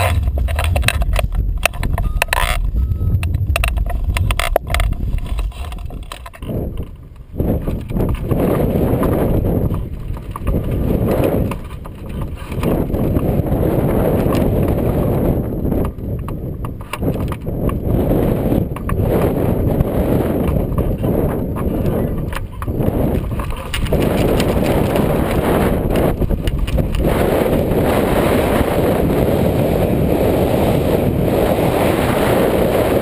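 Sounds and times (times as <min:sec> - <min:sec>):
clicks: 0:00.0 - 0:08.3
wind buffeting microphone: 0:00.0 - 0:33.0.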